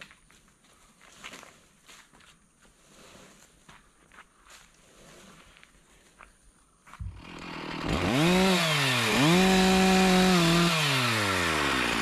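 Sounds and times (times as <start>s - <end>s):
chainsaw revving: 7.1s - 12.0s.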